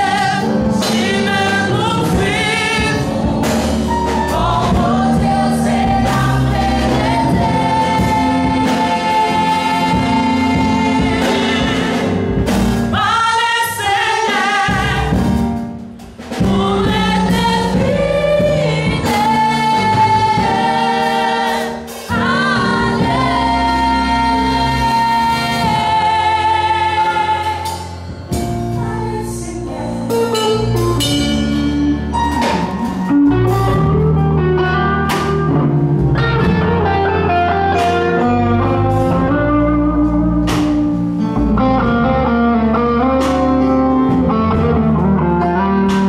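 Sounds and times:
women singing gospel in harmony: 0:00.0 - 0:15.6, 0:16.3 - 0:32.0
live band playing: 0:00.0 - 0:46.0.

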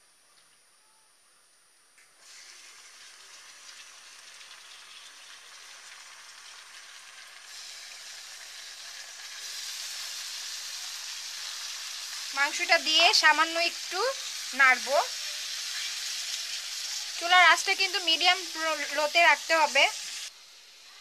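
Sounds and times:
meat sizzling in hot oil: 0:02.2 - 0:21.0.

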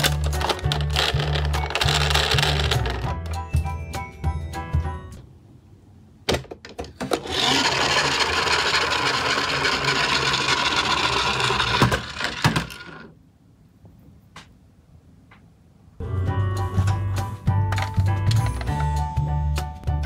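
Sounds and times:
plastic wheels rolling on wood: 0:00.0 - 0:03.3, 0:06.9 - 0:13.2
toy truck knocks: 0:09.2 - 0:13.1.

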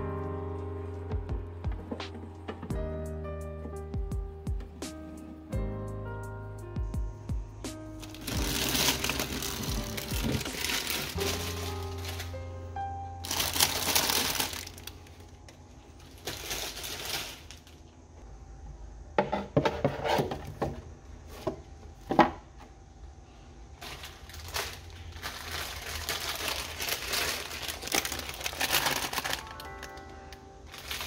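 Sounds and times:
plastic packets crinkling: 0:08.0 - 0:12.5, 0:13.2 - 0:17.9, 0:23.8 - 0:31.0.

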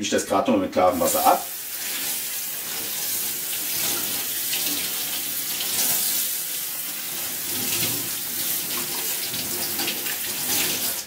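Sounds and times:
tap water splashing on metal plate: 0:07.0 - 0:11.0.

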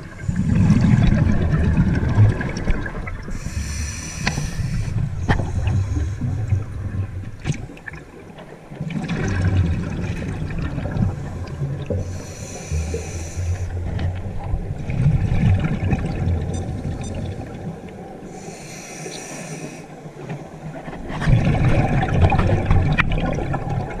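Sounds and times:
exhaled bubbles gurgling: 0:00.0 - 0:24.0
regulator hissing inhales: 0:03.3 - 0:06.3, 0:12.0 - 0:13.8, 0:18.3 - 0:19.9.

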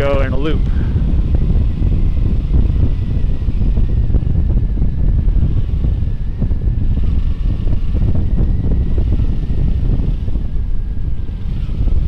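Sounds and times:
faint steady whine: 0:00.0 - 0:12.0
motorcycle engine running: 0:00.0 - 0:12.0
wind buffeting microphone: 0:00.0 - 0:12.0.

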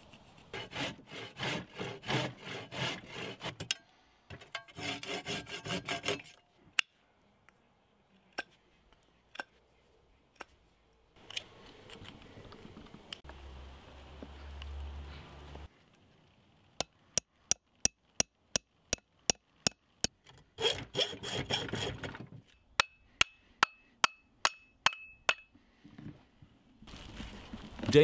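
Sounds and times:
hammer striking axe head: 0:22.8 - 0:25.5.

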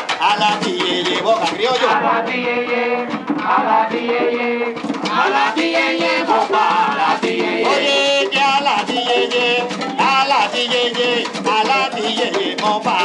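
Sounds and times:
conga drums: 0:00.0 - 0:13.0
person singing: 0:00.2 - 0:03.2, 0:05.2 - 0:13.0.

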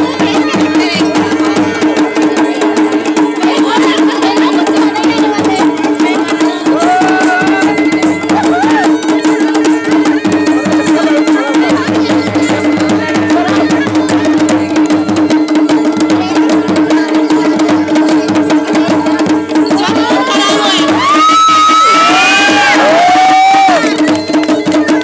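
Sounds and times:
hand and stick drumming: 0:00.0 - 0:25.0
crowd shouting: 0:06.0 - 0:13.9, 0:19.8 - 0:24.2.

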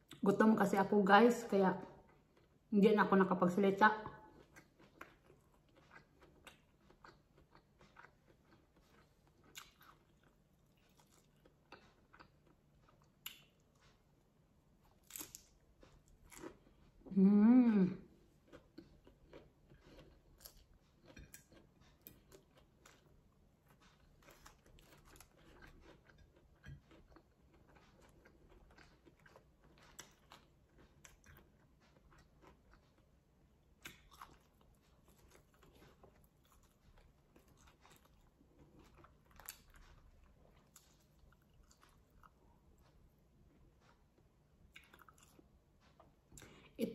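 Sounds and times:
mouth chewing: 0:04.3 - 0:14.1, 0:18.3 - 0:46.9.

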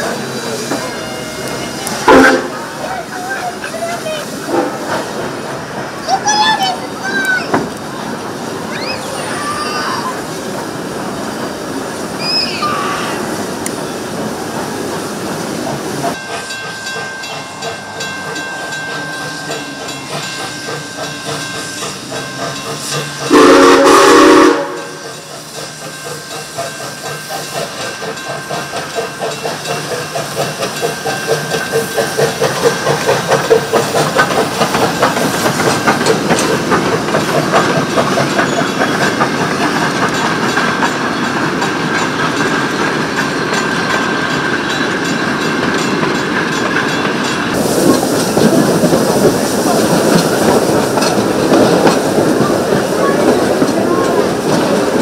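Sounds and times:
steam hiss: 0:00.0 - 0:55.0
steam locomotive chuffing: 0:00.0 - 0:55.0
steam whistle blast: 0:23.3 - 0:25.0.

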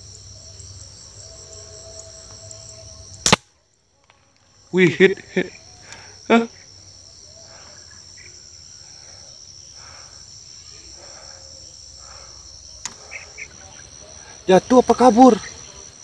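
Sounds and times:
insects chirring: 0:00.0 - 0:16.0
sharp click: 0:03.2 - 0:03.5.

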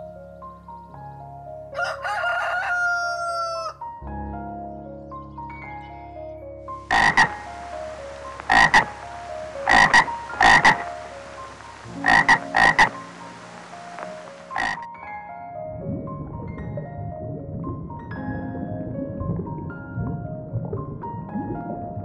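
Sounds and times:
soft melody of held notes: 0:03.9 - 0:22.0
frog croaking: 0:06.8 - 0:14.9.

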